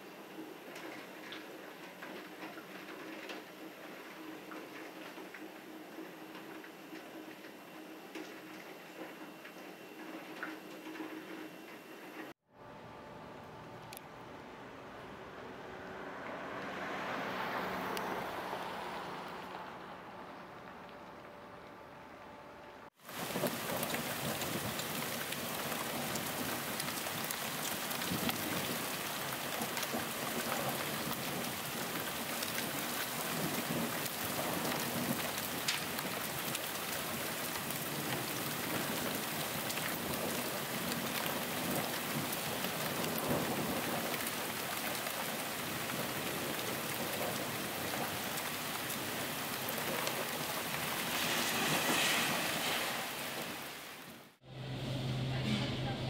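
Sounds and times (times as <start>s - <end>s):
heavy rain on pavement: 0.0s - 12.1s, 16.4s - 21.8s, 22.8s - 54.4s
water splashing from gutter: 23.0s - 54.4s.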